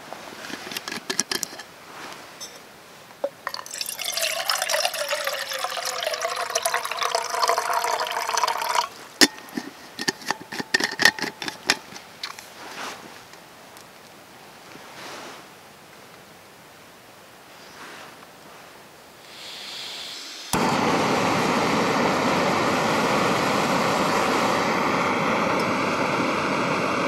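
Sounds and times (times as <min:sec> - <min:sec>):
water pouring into metal pot: 0:03.2 - 0:12.0.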